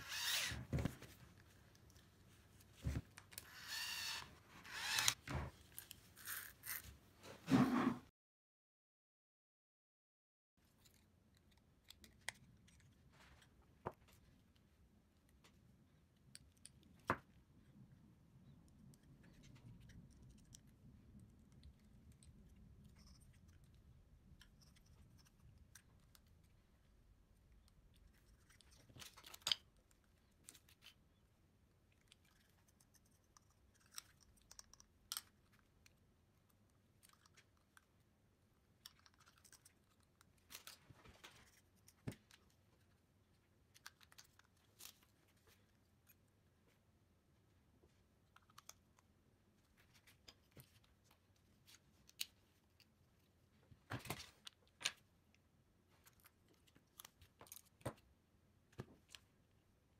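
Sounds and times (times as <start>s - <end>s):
small parts clicking and tapping: 31.8s - 38.1s.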